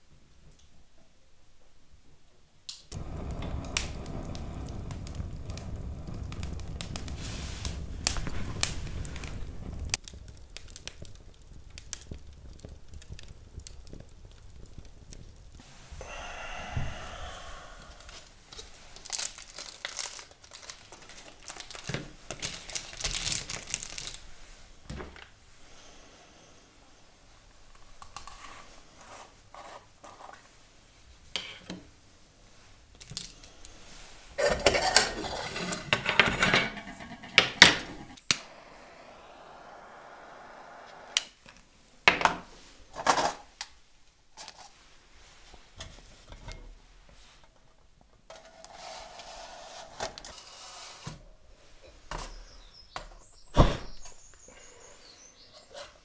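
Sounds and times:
rustling: 2.9 - 16.0, 16.9 - 25.7
small hard objects clattering: 17.9 - 24.3, 34.4 - 38.4.

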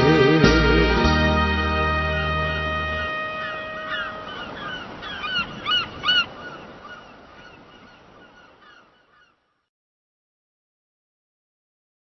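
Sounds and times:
gulls calling: 0.5 - 9.6.

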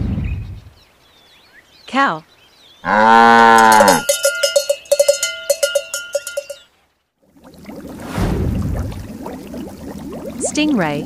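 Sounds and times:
cow mooing: 2.8 - 4.1
cowbells clanking: 3.4 - 6.6.

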